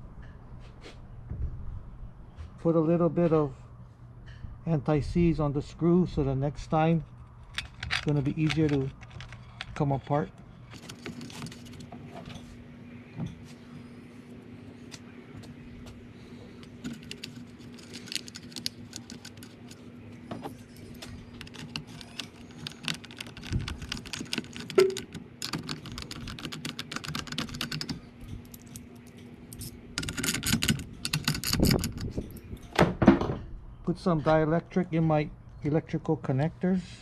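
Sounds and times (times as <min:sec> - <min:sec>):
socket ratchet clicking: 0:21.3 - 0:32.4.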